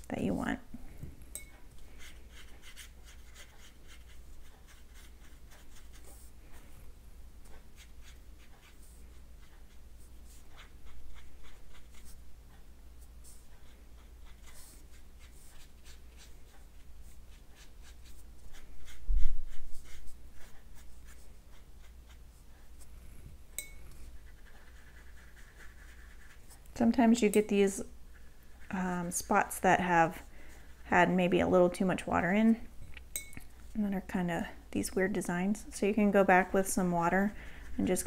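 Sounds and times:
paintbrush brushing on paper: 1.8s - 22.9s, 23.9s - 27.4s, 28.0s - 31.4s.

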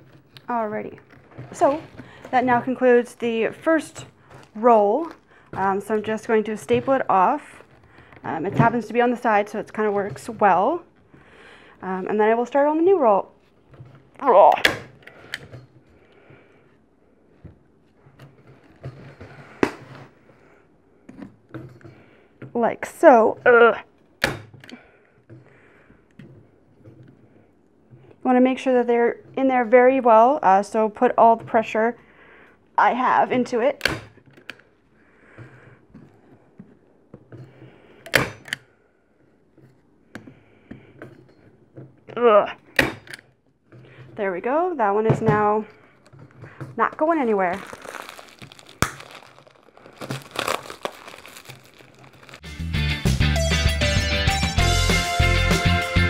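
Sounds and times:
rope rustling and small knocks: 45.8s - 52.5s.

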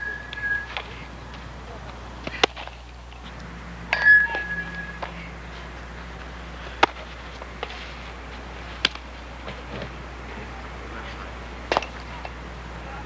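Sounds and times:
high whistle-like chirp: 0.0s - 0.8s.

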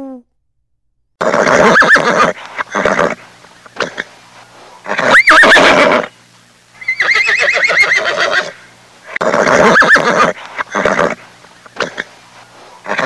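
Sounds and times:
horse whinnying: 1.2s - 3.2s, 4.9s - 6.1s, 6.8s - 8.6s, 9.2s - 11.2s.

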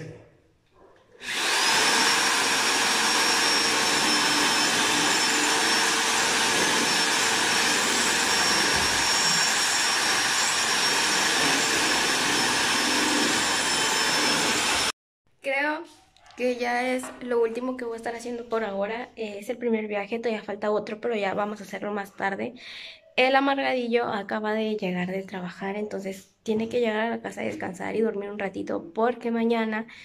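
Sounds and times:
electric drill boring into wall: 1.2s - 15.0s.

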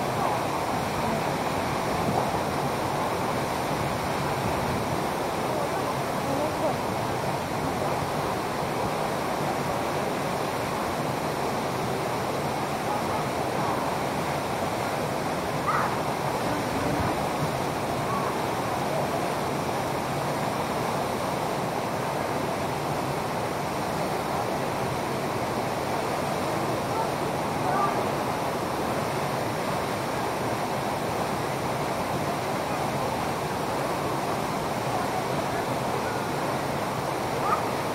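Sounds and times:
waterfall rushing into pool: 0.0s - 37.9s.

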